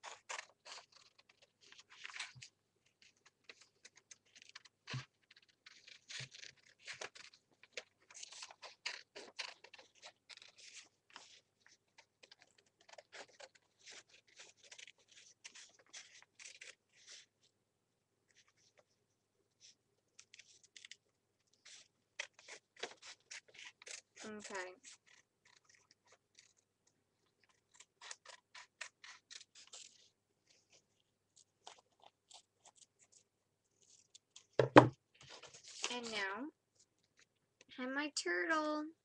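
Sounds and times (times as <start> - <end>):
scissors snipping paper: 0.0 - 17.3, 19.6 - 26.6, 27.2 - 30.8, 31.4 - 33.2
paper rustling: 0.0 - 17.4, 19.6 - 26.6, 27.2 - 36.2.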